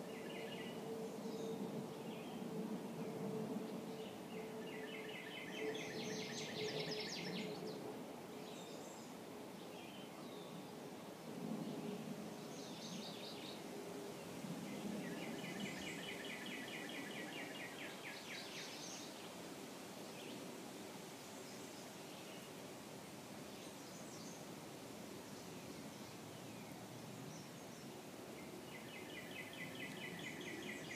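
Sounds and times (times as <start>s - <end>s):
birds singing: 3.9s - 7.8s, 14.7s - 19.1s, 25.4s - 30.9s.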